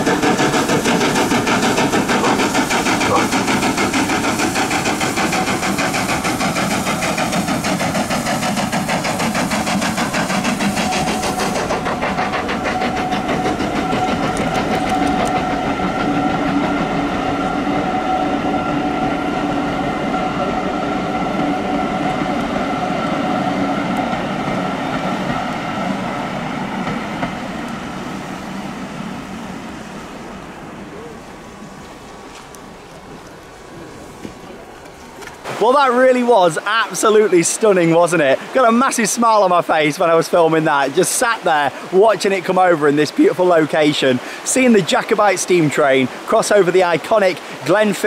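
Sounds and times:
train wheels ringing: 0.0s - 32.4s
steam locomotive chuffing: 0.0s - 48.0s.

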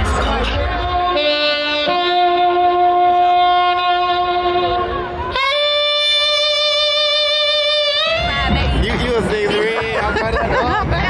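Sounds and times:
long held wind instrument notes: 0.3s - 8.9s.

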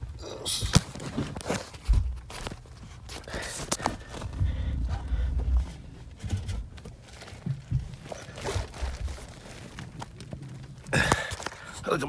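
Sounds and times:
insulation rustling: 0.0s - 12.0s
dull knocks: 4.0s - 9.1s.

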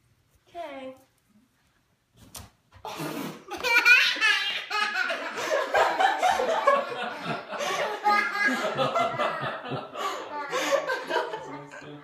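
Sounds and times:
people laughing: 3.5s - 12.0s.

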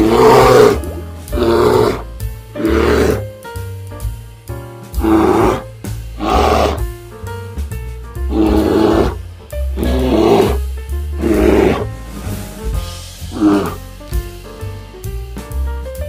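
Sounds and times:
bear roaring: 0.0s - 3.3s, 5.0s - 6.8s, 8.3s - 9.2s, 9.8s - 10.6s, 11.2s - 11.9s, 13.3s - 13.8s
background music with bass line: 0.0s - 16.0s.

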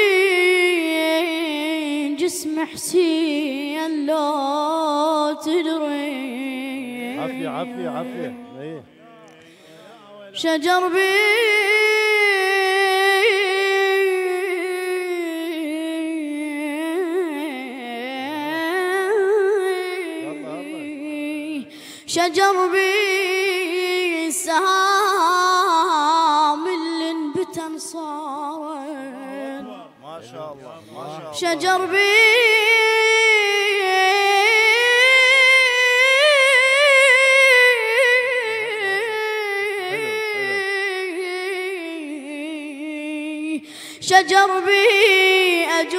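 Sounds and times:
boy chanting: 0.0s - 45.9s
boy singing solo: 31.2s - 42.0s
low wavering voice: 39.7s - 41.0s.

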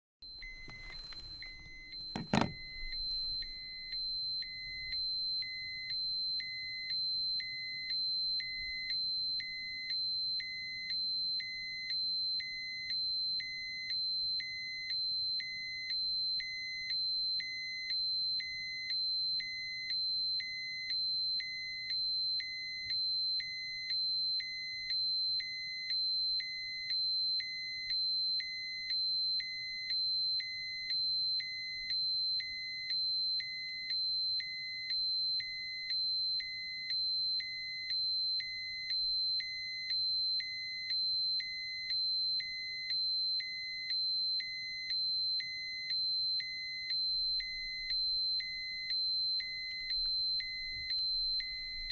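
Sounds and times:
low pulsing beep: 0.3s - 9.6s, 37.4s - 51.9s
high-pitched electronic alarm tone: 0.3s - 9.9s, 34.4s - 51.9s
thump: 2.1s - 3.0s.

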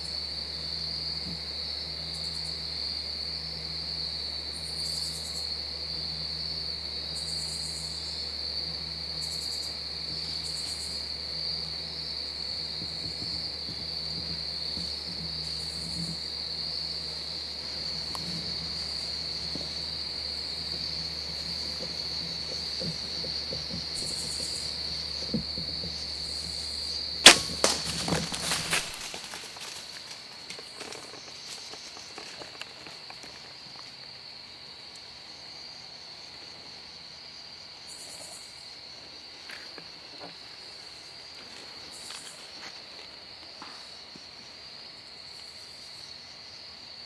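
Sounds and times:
crickets chirring: 0.0s - 47.0s
bow shot snap: 27.2s - 29.1s
quick knocks: 27.2s - 29.1s.

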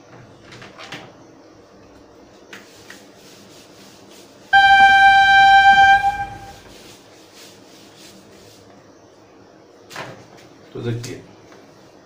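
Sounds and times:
train horn blast: 4.6s - 6.7s.

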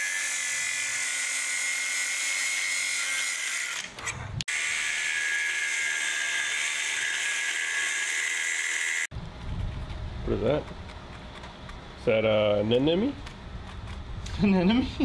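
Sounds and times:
angle grinder grinding metal: 0.0s - 9.1s.

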